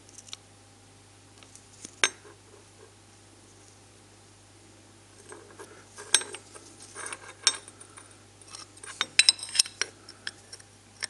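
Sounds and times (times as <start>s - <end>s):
steel parts clinking and knocking: 6.0s - 7.8s, 8.4s - 10.4s.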